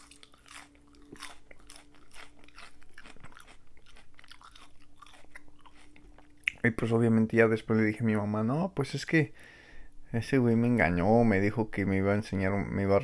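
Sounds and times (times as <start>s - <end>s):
lettuce crunching while chewing: 0.0s - 6.6s.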